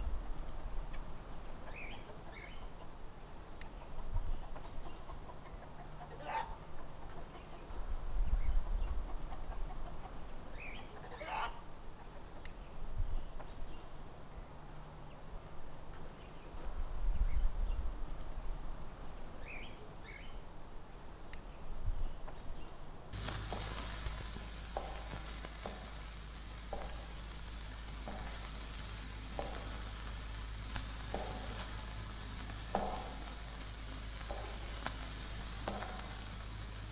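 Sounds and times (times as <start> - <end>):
steady hiss and hum: 0.0 - 36.9
low uneven rumble: 23.1 - 36.9.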